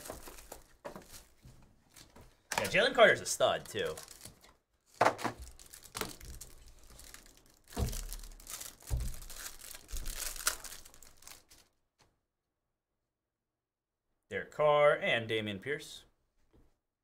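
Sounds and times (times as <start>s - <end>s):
plastic wrapper crinkling and tearing: 0.0s - 11.7s.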